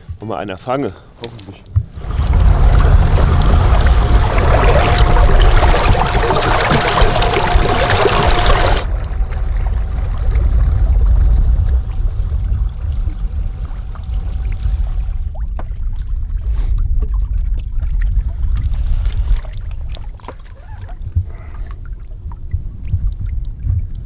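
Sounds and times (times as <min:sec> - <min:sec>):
wind rumble on microphone: 0:01.8 - 0:24.0
water rushing and splashing: 0:01.9 - 0:16.2
thin steady whine: 0:02.0 - 0:08.9.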